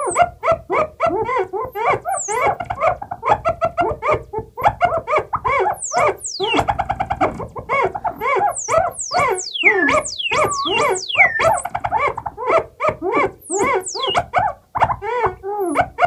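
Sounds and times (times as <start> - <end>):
stuttering repeated synth notes: 5.4 - 12.4, 13.3 - 14.3
high falling whistles: 5.5 - 12.2, 13.5 - 14.3
synthesizer chirps: 5.5 - 12.4, 13.4 - 14.3.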